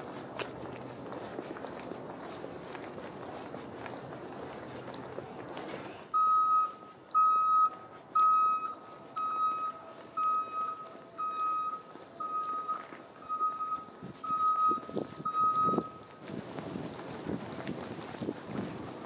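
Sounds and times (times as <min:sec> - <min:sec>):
vehicle back-up alarm beeping: 0:06.1 - 0:16.2.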